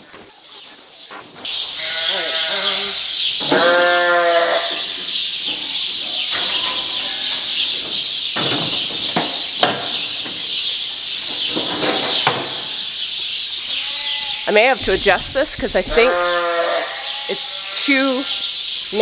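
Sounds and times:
sheep bleating: 0:01.8 - 0:04.7, 0:13.7 - 0:17.9.

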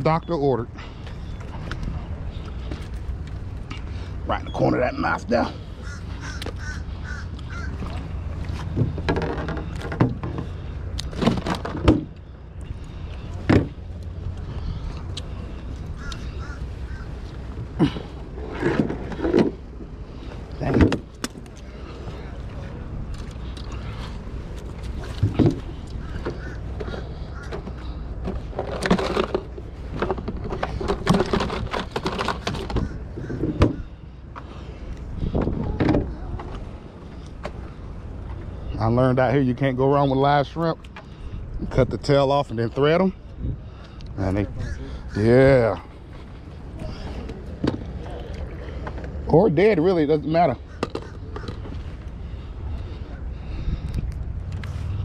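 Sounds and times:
wind rumble on microphone: 0:05.3 - 0:39.8, 0:41.3 - 0:49.5, 0:50.4 - 0:55.0
bird harsh calls: 0:05.4 - 0:08.2, 0:14.6 - 0:18.0, 0:25.9 - 0:28.1
wind on microphone: 0:34.8 - 0:37.2, 0:43.2 - 0:45.2, 0:50.6 - 0:55.0.

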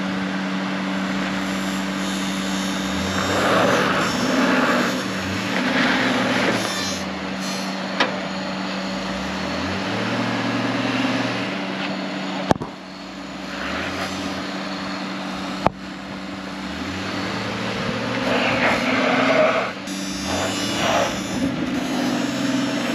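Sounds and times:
car engine revving: 0:00.0 - 0:22.9
low hum: 0:11.4 - 0:22.9.

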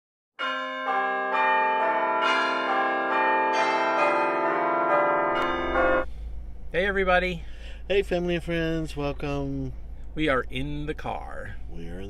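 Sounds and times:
bells chiming a melody: 0:00.4 - 0:06.1.

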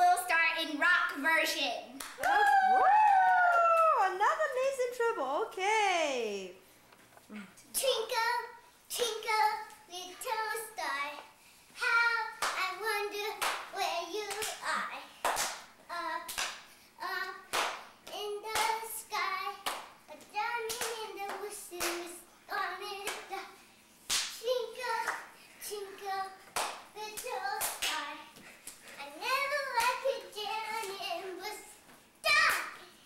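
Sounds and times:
hands clapping: 0:02.0 - 0:03.9, 0:13.4 - 0:13.7, 0:15.2 - 0:15.7, 0:17.5 - 0:18.8, 0:19.6 - 0:22.0, 0:24.1 - 0:24.4, 0:26.6 - 0:28.8.

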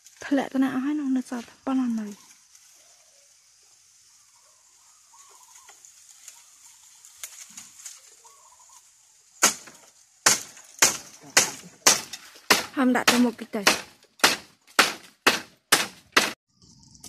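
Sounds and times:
faint bird calls: 0:04.0 - 0:07.0, 0:07.9 - 0:09.0
bamboo twigs snapping: 0:05.6 - 0:08.2, 0:08.8 - 0:16.0.

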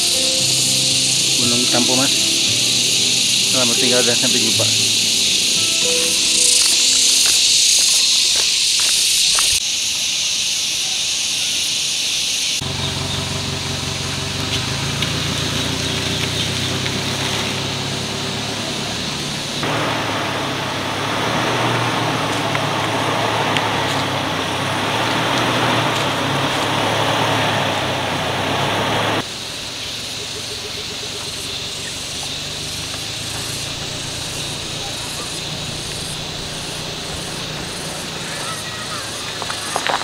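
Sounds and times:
low engine hum: 0:00.0 - 0:07.6, 0:12.6 - 0:40.0
steady high hiss: 0:00.0 - 0:12.6, 0:14.6 - 0:39.7
tyre noise over dirt: 0:14.2 - 0:27.8, 0:32.4 - 0:40.0.

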